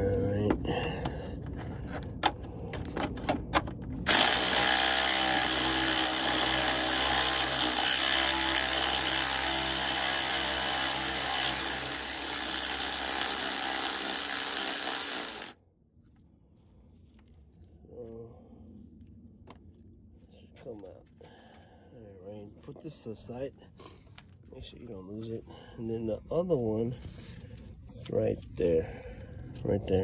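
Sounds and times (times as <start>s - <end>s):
electric ratchet running: 4.1s - 15.6s.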